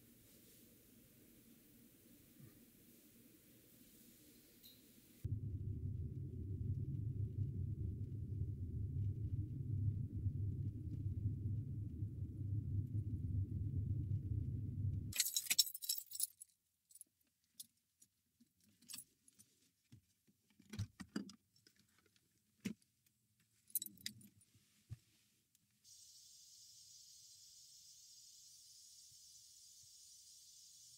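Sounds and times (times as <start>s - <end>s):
car driving rumble: 5.3s - 15.1s
keys jangling: 15.1s - 17.0s.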